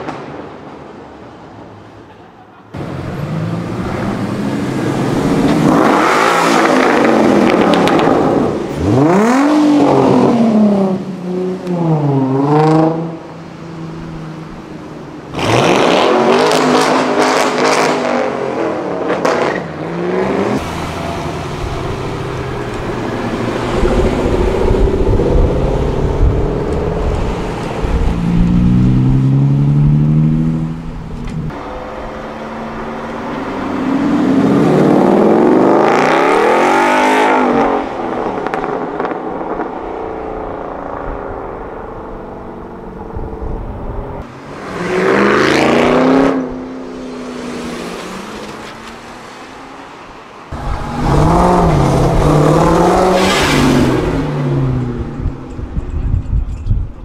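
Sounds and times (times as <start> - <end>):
car engines revving and accelerating: 2.7 - 56.6.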